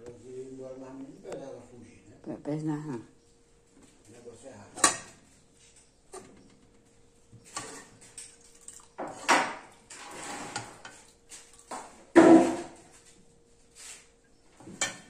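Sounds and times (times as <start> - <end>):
metal ladle scraping a pot: 7.4 - 8.1, 9.0 - 11.2.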